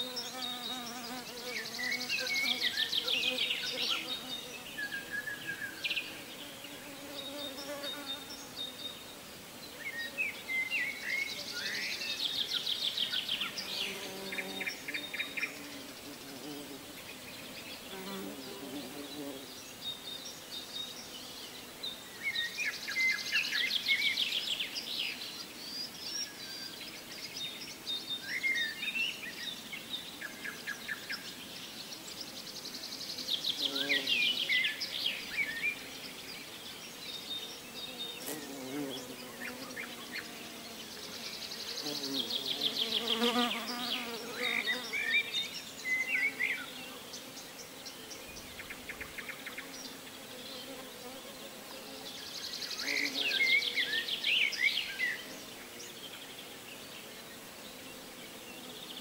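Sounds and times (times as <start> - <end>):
insects buzzing: 0.0 - 59.0
small birds singing: 0.0 - 59.0.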